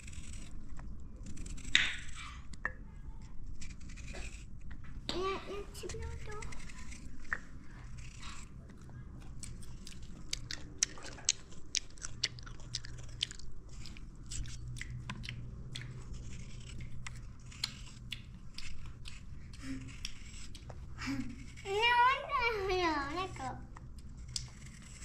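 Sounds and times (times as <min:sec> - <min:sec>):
knife cutting raw potato: 0:03.2 - 0:11.8, 0:13.7 - 0:25.0.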